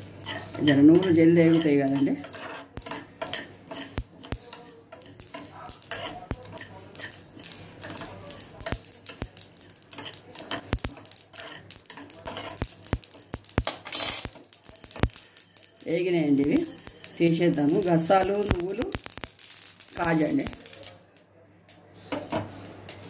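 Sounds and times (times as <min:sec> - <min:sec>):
spoon scraping seeds in pan: 0:00.0 - 0:21.2
spoon tapping against pan: 0:00.1 - 0:15.8.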